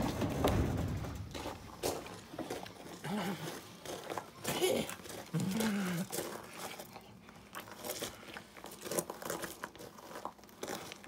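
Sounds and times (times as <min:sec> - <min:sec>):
snack crinkling and crunching: 0:01.2 - 0:11.0.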